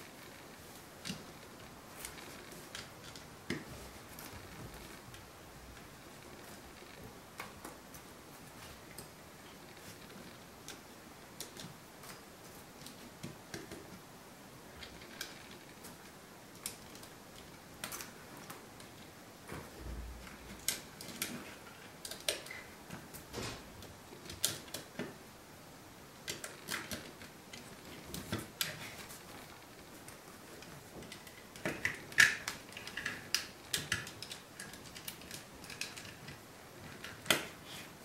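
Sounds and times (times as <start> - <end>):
plastic parts clicking and snapping: 20.2 - 22.7, 26.2 - 37.8.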